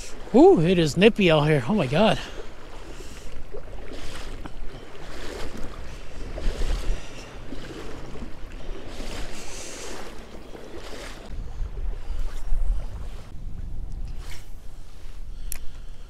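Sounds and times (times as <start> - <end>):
river water rushing: 0.0 - 11.3
wind buffeting microphone: 1.9 - 16.0.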